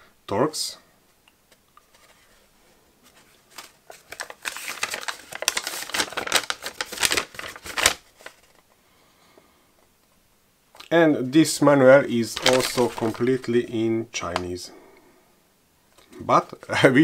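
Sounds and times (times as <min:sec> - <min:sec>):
paper rustling and crinkling: 0:01.8 - 0:08.7, 0:12.2 - 0:13.6.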